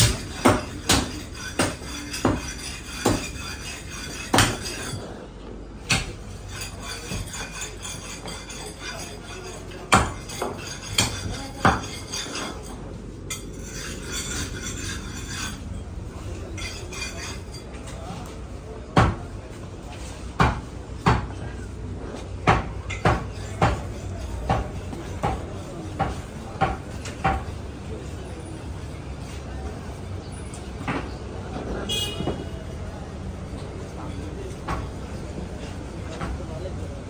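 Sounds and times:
cleaver chopping meat and bone: 0.0 - 3.4, 4.3 - 4.7, 5.8 - 6.3, 9.9 - 11.9, 20.4 - 21.4, 22.4 - 27.5
shop noise: 0.0 - 37.0.

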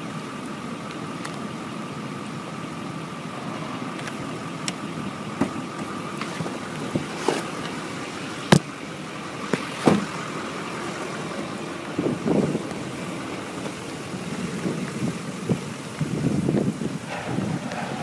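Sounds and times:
wind on microphone: 14.4 - 18.0.

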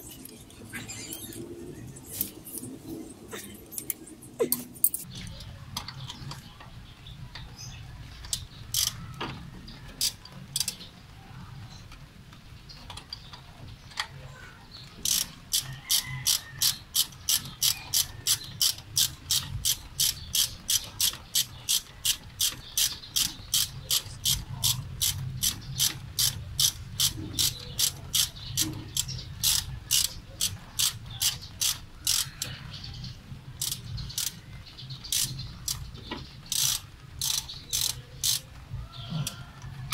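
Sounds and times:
ratchet wrench clicking: 8.7 - 9.0, 15.0 - 32.5, 33.6 - 34.4, 35.1 - 38.4.

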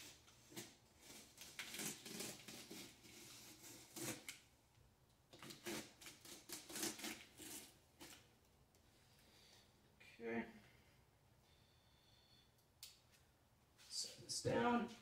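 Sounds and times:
knife scraping cardboard: 0.0 - 4.4, 5.4 - 8.2.

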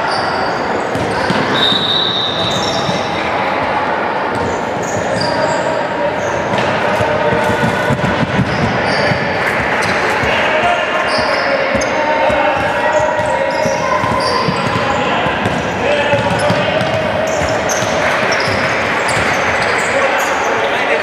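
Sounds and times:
sneakers squeaking on wooden court: 0.0 - 3.3, 4.3 - 20.7
crowd din: 0.0 - 21.0
players calling out: 0.0 - 21.0
basketball bouncing: 0.9 - 1.7, 7.3 - 10.4, 11.7 - 19.8.

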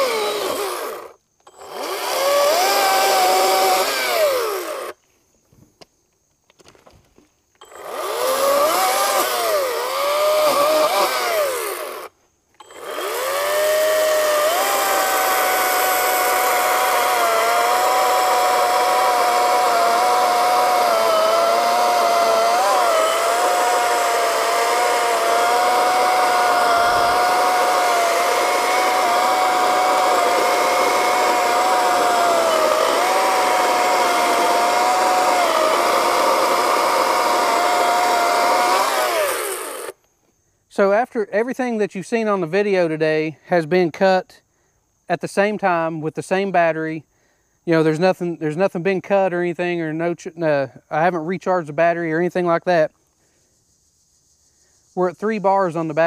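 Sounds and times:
chainsaw whine cutting log: 0.0 - 5.0, 7.6 - 40.0, 55.7 - 56.0.

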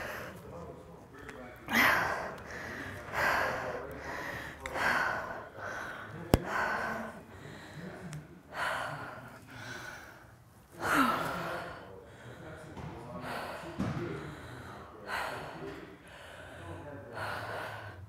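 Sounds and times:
woman panting: 1.7 - 7.7.

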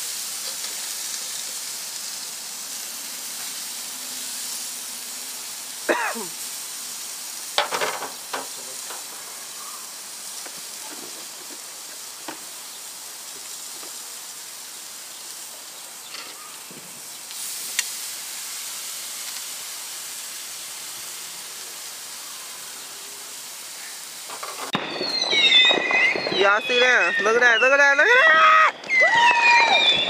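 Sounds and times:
meat sizzling on a grill: 0.0 - 30.0.

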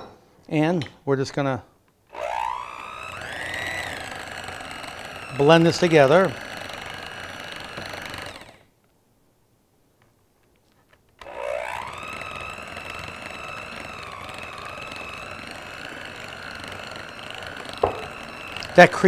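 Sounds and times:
electric hand mixer whining: 2.1 - 8.7, 11.2 - 19.0.

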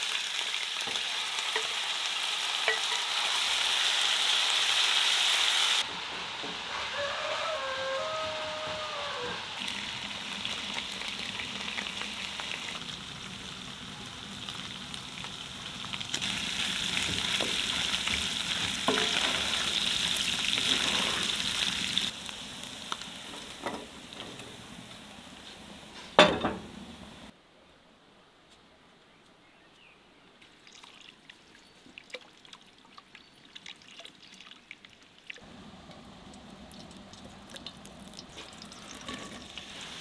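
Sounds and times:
meat sizzling in a pan: 0.0 - 25.8, 38.3 - 40.0.

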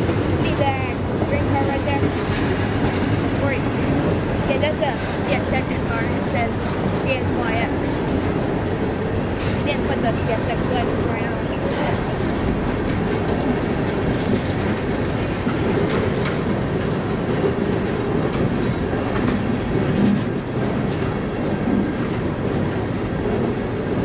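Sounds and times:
steel wheels rumbling on rail: 0.0 - 24.0.

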